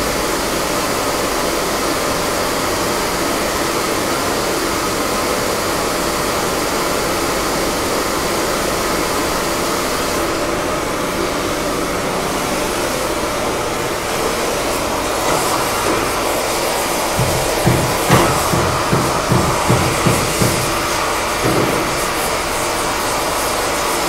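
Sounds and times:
steady rushing noise: 10.5 - 24.0.

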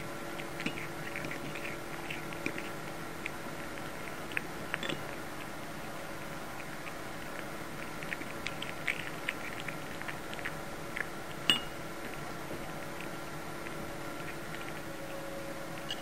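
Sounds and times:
cat licking and chewing: 0.0 - 16.0
clink against ceramic bowl: 4.8 - 5.0, 11.5 - 11.8.

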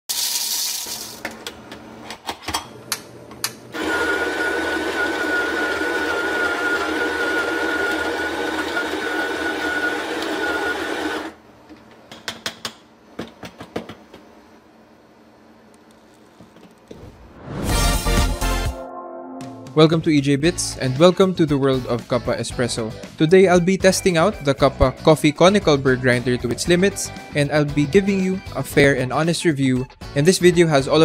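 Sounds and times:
coffee beans rattling into hopper: 0.1 - 1.2
coffee grinder whining: 0.1 - 1.2, 3.8 - 11.4.

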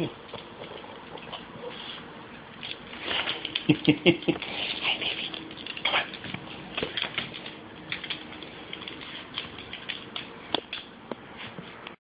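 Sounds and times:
dog claws clicking on hardwood floor: 2.5 - 11.2.

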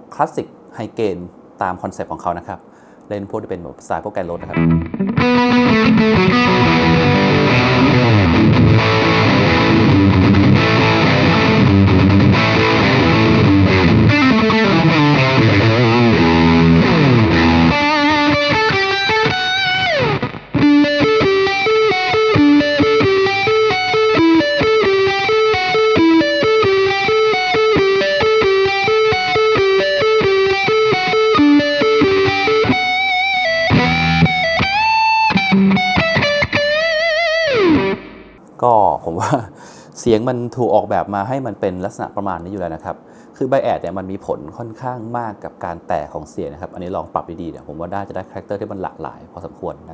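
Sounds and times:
distorted electric guitar: 4.4 - 38.4.

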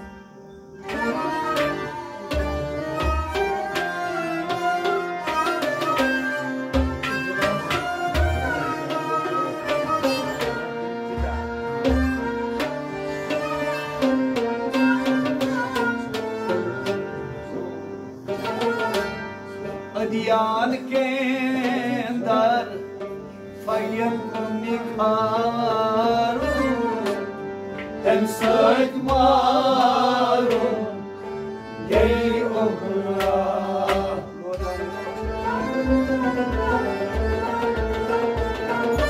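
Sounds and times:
harmonium: 0.0 - 39.0
low rhythmic thumps: 0.0 - 39.0
plucked strings: 0.0 - 39.0
men singing with vibrato: 19.9 - 39.0.

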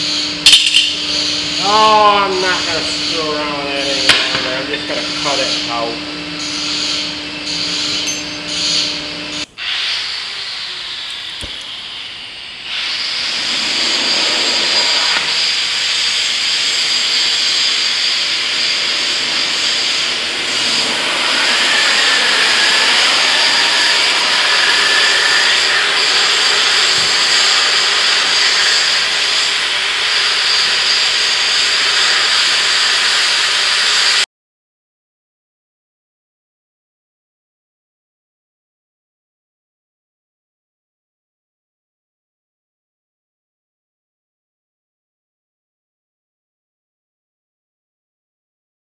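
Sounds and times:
cutting torch hissing: 0.0 - 34.2.

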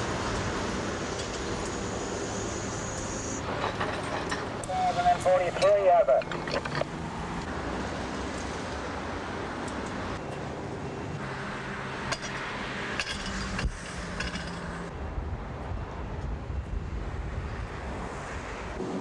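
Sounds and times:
street noise: 0.0 - 19.0
sharp clinks and knocks: 6.1 - 7.0, 12.1 - 14.8.

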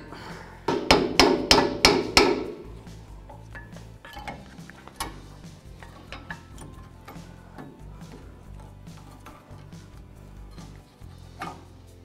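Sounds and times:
metal tool clinking and scraping: 2.5 - 12.0.

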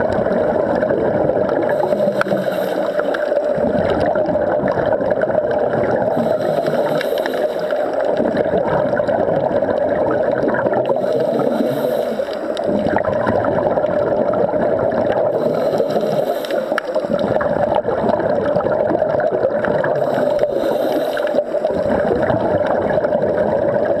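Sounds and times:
steady hum: 0.0 - 4.0, 5.9 - 8.6, 10.6 - 13.8, 15.2 - 18.0
regulator bubbles gurgling: 0.0 - 24.0.

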